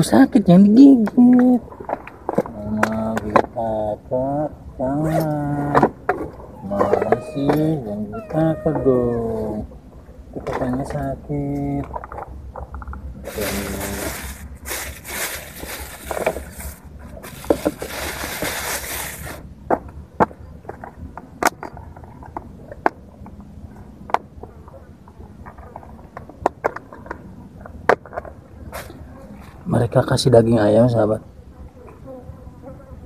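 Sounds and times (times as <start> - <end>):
plastic bag rustling: 13.2 - 19.4.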